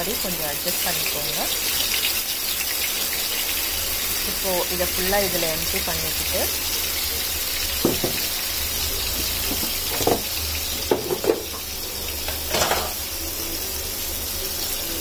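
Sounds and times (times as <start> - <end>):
paste sizzling in hot oil: 0.0 - 15.0
utensils knocking against pan: 7.8 - 8.4, 9.4 - 13.0.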